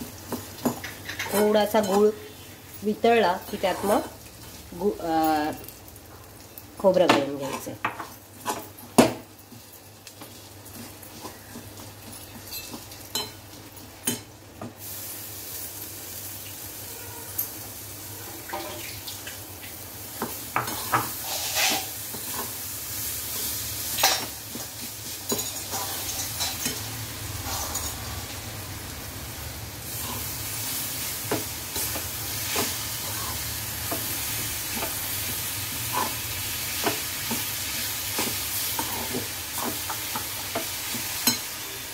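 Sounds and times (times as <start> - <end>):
steady sizzle: 0.0 - 41.9
spatula scraping a metal pan: 20.6 - 22.6.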